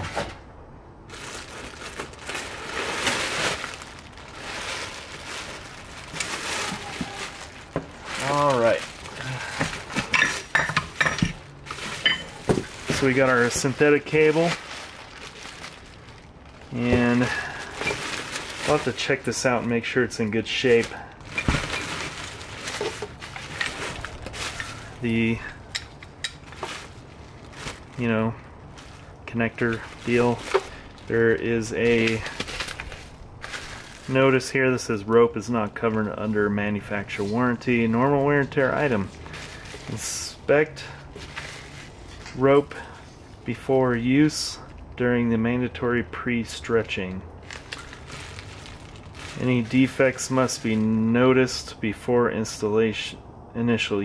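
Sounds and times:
plastic wrapping crinkling: 1.1s - 34.6s, 37.0s - 40.3s, 41.0s - 42.4s, 47.4s - 51.0s.

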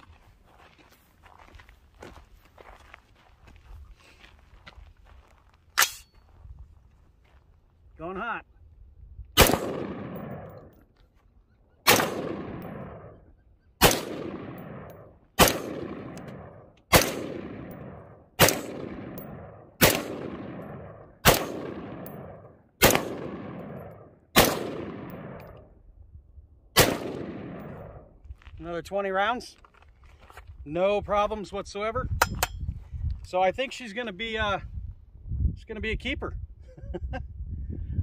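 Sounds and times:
rifle shots echoing: 9.4s - 10.8s, 11.8s - 13.2s, 13.8s - 25.7s, 26.8s - 28.1s.

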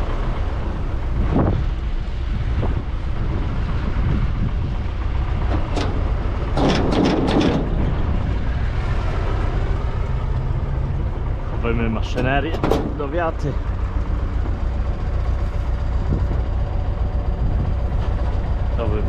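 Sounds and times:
tractor engine running: 0.0s - 19.0s
clattering knocks and rattles: 4.5s - 8.5s, 10.0s - 18.8s.

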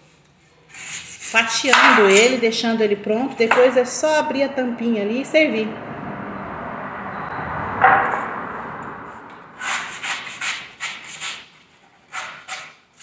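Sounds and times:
knife scraping coconut husk: 0.4s - 1.6s.

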